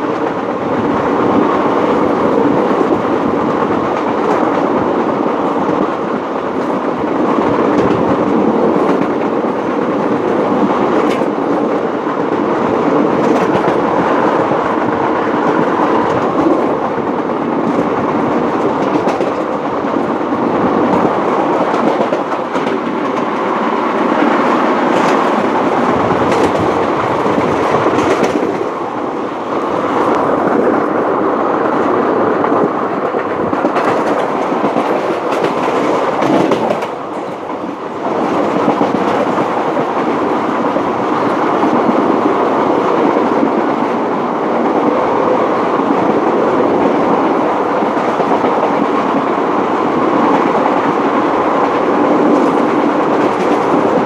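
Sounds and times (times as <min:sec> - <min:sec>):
wheels clicking over rail joints: 0:00.0 - 0:29.0, 0:32.4 - 0:42.3
train rolling rumble: 0:00.0 - 0:54.0.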